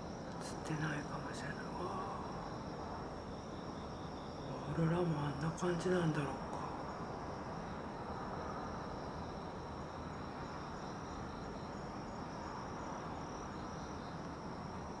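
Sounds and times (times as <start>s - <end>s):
low background noise: 0.0s - 15.0s
night insects trilling: 0.0s - 15.0s.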